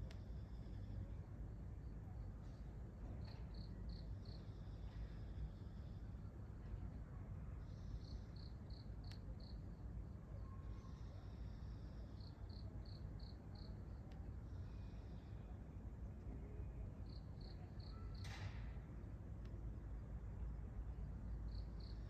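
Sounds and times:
low background rumble: 0:00.0 - 0:18.0
cricket chirping: 0:00.1 - 0:06.3, 0:07.6 - 0:15.6, 0:17.0 - 0:18.6, 0:20.9 - 0:22.0.

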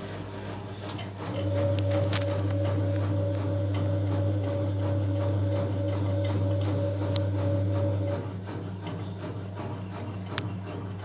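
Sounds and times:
motor whine: 0:00.0 - 0:08.4
washing machine drum spinning: 0:00.0 - 0:11.0.

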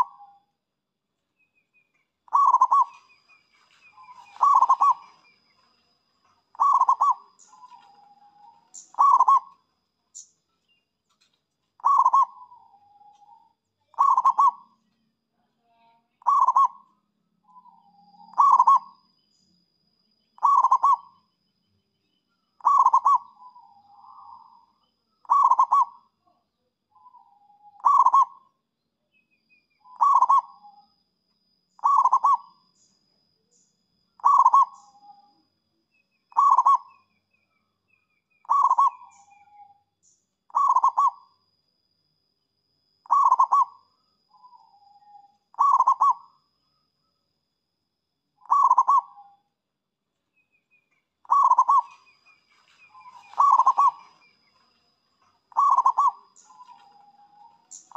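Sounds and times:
dove cooing: 0:00.0 - 0:00.4, 0:02.3 - 0:05.6, 0:06.3 - 0:09.6, 0:11.8 - 0:14.8, 0:16.2 - 0:16.8, 0:17.6 - 0:19.0, 0:20.4 - 0:21.2, 0:22.6 - 0:26.0, 0:27.0 - 0:28.4, 0:29.9 - 0:30.8, 0:31.8 - 0:32.6, 0:34.2 - 0:35.3, 0:36.3 - 0:37.0, 0:38.4 - 0:39.6, 0:40.5 - 0:41.3, 0:43.0 - 0:43.8, 0:44.4 - 0:46.3, 0:48.4 - 0:49.3, 0:51.2 - 0:57.9.

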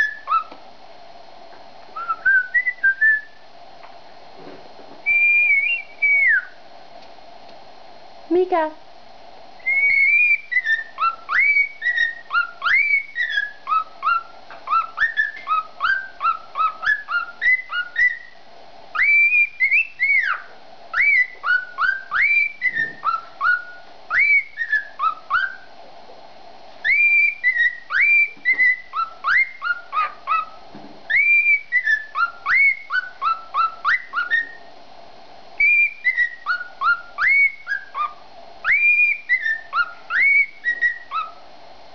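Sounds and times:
cockatiel whistling song: 0:00.0 - 0:00.6, 0:02.0 - 0:03.4, 0:05.0 - 0:06.6, 0:09.6 - 0:25.7, 0:26.8 - 0:34.7, 0:35.6 - 0:41.4.

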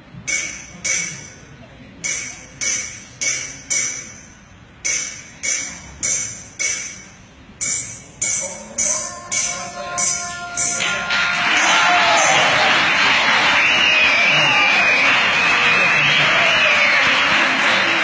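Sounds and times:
held melody: 0:07.6 - 0:12.6.

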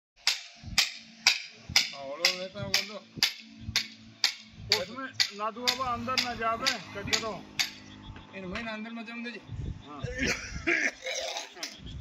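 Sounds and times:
clicking percussion beat: 0:00.2 - 0:08.3.

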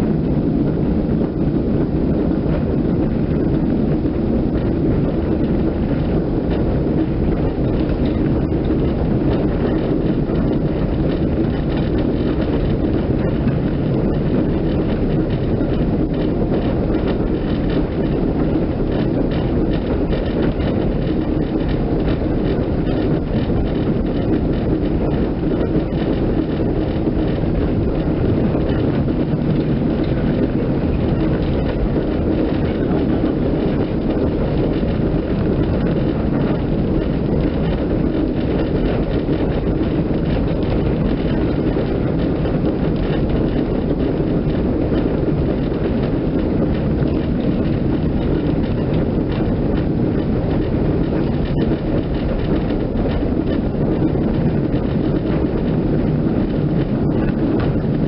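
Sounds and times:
vehicle cabin rumble: 0:00.0 - 0:58.0.

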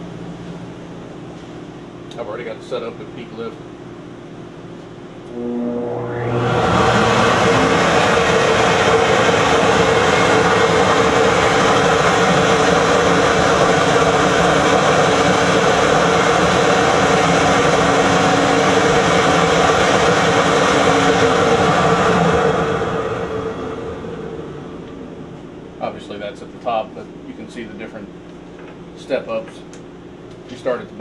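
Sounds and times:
motor hum: 0:05.0 - 0:26.1
loud rush of air: 0:05.3 - 0:25.8.

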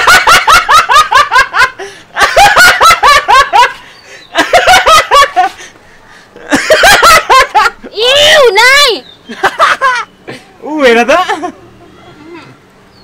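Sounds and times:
woman laughing: 0:00.0 - 0:05.6, 0:06.4 - 0:08.0.

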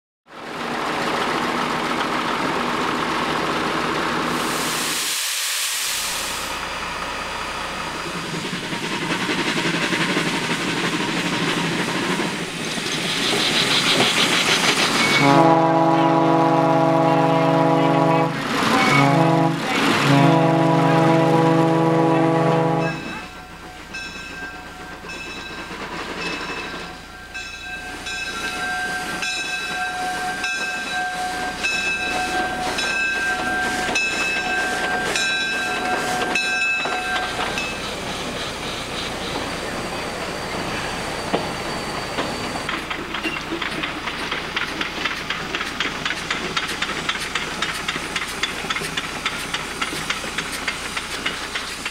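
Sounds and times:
wheels clicking over rail joints: 0:00.3 - 0:04.2, 0:42.1 - 0:51.9
steam locomotive exhaust beats: 0:00.6 - 0:51.9
steam hiss: 0:04.2 - 0:15.3, 0:27.9 - 0:51.9
locomotive bell ringing: 0:14.9 - 0:38.1, 0:39.1 - 0:43.7.

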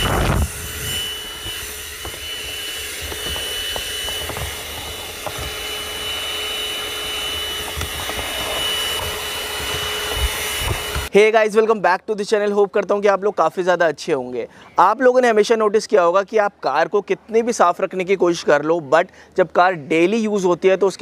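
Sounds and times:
handheld vacuum cleaner running: 0:00.0 - 0:11.1.

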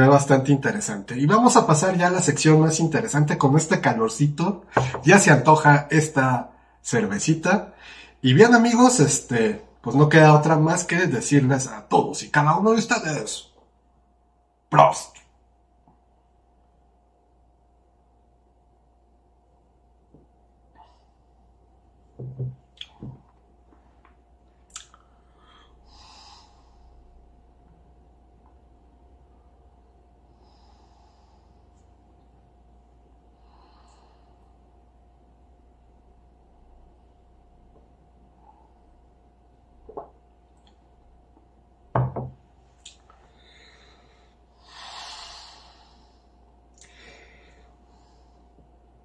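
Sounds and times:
glass clicking onto a table: 0:22.2 - 0:23.2, 0:42.0 - 0:42.4
swallowing and lip sounds: 0:22.8 - 0:23.0, 0:24.7 - 0:25.1.

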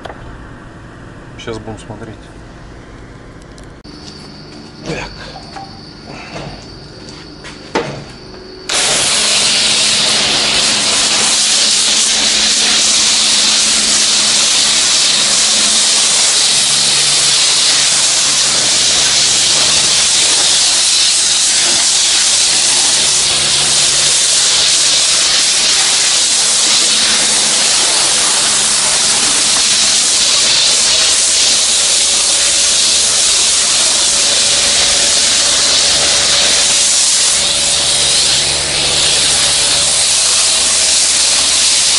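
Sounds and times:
high-pressure spray hissing: 0:08.5 - 0:41.9.

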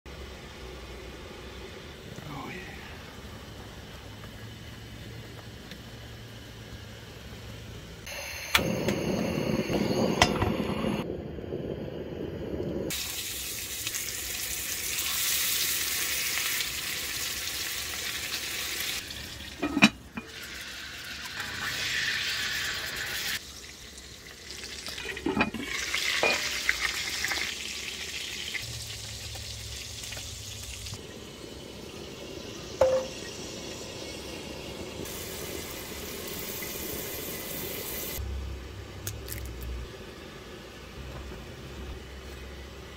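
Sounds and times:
patties sizzling in a skillet: 0:12.9 - 0:38.2.

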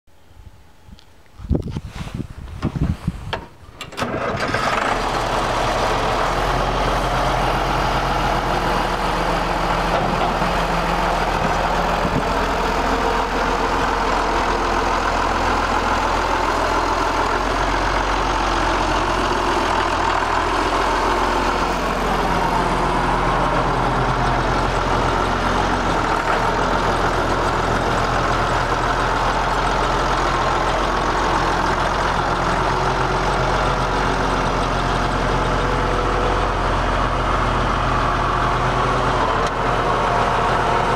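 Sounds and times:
tractor diesel engine starting: 0:02.5 - 0:40.9.

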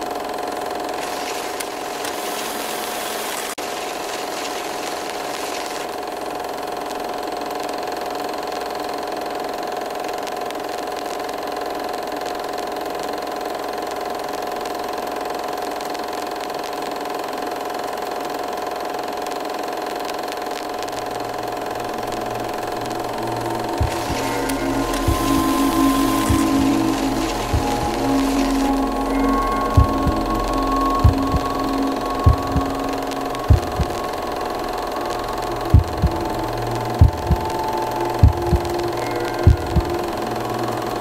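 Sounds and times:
constant hiss: 0:00.0 - 0:06.1, 0:19.1 - 0:41.0
droning hum of held tones: 0:19.0 - 0:41.0.

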